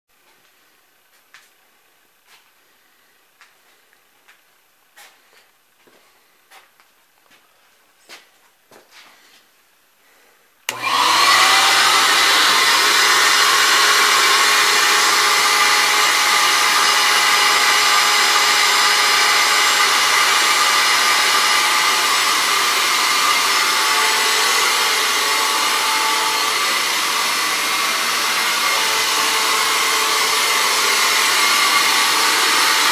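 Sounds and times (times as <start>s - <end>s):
vacuum motor whining: 10.7s - 32.9s.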